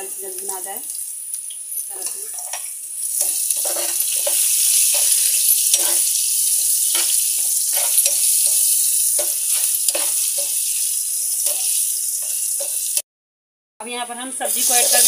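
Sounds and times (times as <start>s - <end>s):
onions sizzling in hot oil: 0.0s - 13.0s, 13.9s - 15.0s
metal spoon scraping pan: 1.8s - 13.0s.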